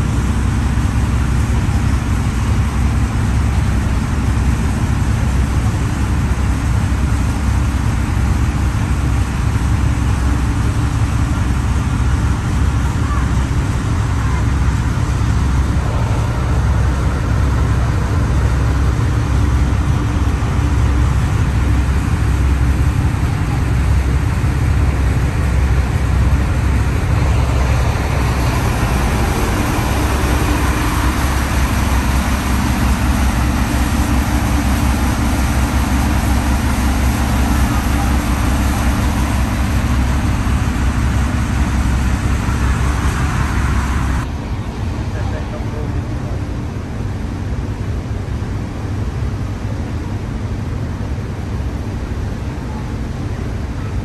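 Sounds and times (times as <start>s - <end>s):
boat engine rumbling: 0.0s - 54.0s.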